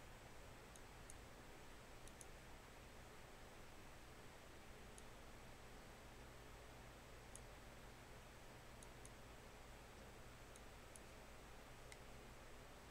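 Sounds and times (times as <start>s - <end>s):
faint hiss and hum: 0.0s - 12.9s
computer mouse clicks: 2.0s - 2.4s, 4.9s - 5.2s, 7.3s - 7.5s, 8.8s - 9.2s, 9.9s - 11.2s, 11.9s - 12.1s.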